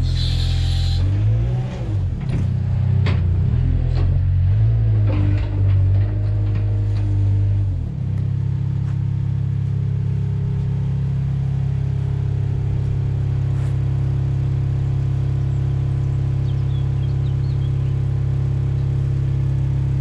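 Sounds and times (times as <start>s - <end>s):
wheel loader engine idling: 0.0s - 1.1s.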